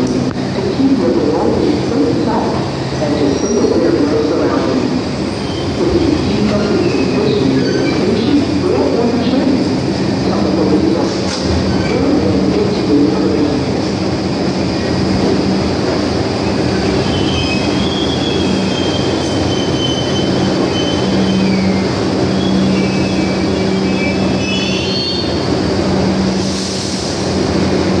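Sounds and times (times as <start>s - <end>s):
subway train rumble: 0.0s - 28.0s
wheel squeals: 16.8s - 25.5s.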